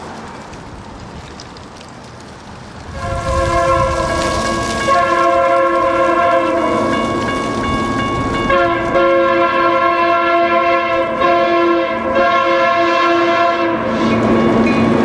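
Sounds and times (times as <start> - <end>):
locomotive air horn blasts: 2.9 - 7.0, 8.4 - 14.4.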